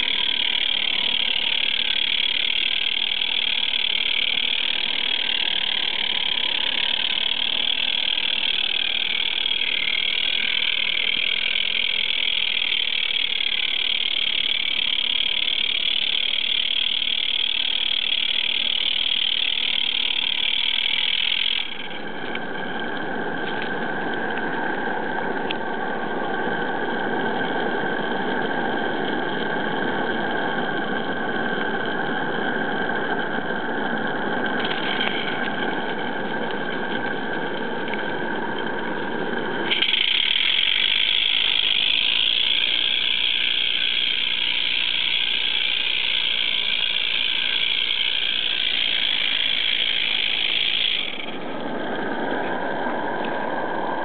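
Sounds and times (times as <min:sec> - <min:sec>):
model steam locomotive hissing: 0:39.6 - 0:51.4.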